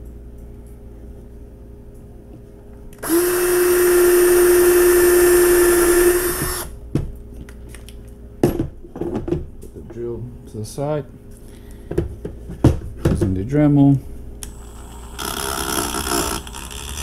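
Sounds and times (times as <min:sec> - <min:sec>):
cordless drill drilling into metal: 0:03.0 - 0:06.7.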